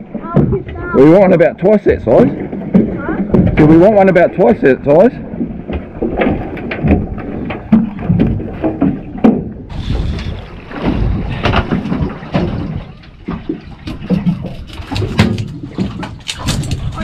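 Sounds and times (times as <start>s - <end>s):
water slapping boat hull: 0.0s - 17.0s
wind buffeting microphone: 0.0s - 17.0s.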